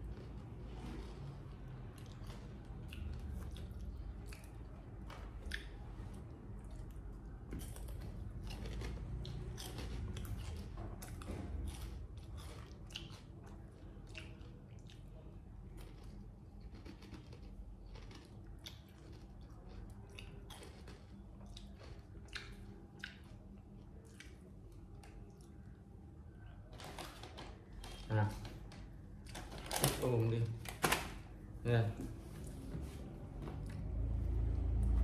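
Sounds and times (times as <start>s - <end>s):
potato chips crunching: 15.7s - 22.5s.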